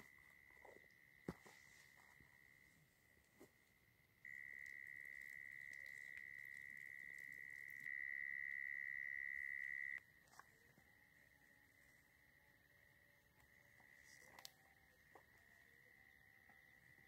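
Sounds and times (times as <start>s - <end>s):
insect high-pitched trill: 4.2s - 10.0s, 10.9s - 17.0s.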